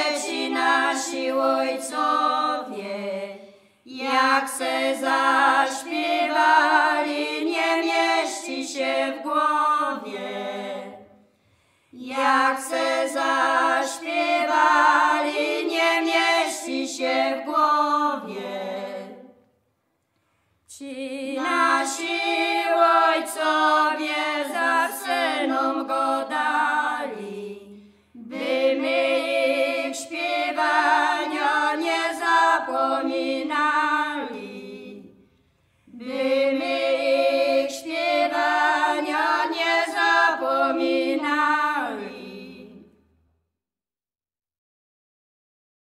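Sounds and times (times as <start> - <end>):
women singing unaccompanied: 0.0 - 11.2, 12.0 - 19.4, 20.7 - 35.2, 36.0 - 42.9
short breaths: 11.2 - 12.0, 35.2 - 36.0.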